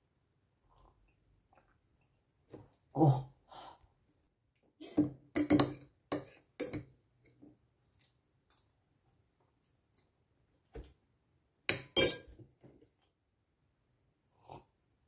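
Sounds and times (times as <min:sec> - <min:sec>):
tableware clinks and knocks: 0:05.0 - 0:06.9, 0:11.7 - 0:12.4
fork clinking on a plate: 0:11.7 - 0:12.3.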